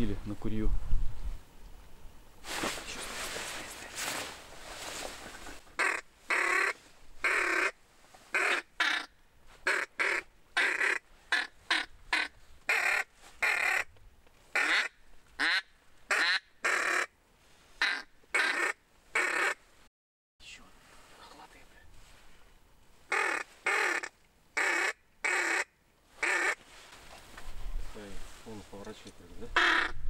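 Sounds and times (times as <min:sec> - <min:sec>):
harsh duck-like quacking: 0:05.8 - 0:07.8, 0:09.7 - 0:13.9, 0:14.6 - 0:17.1, 0:17.8 - 0:19.6, 0:23.1 - 0:26.6, 0:29.6 - 0:30.0.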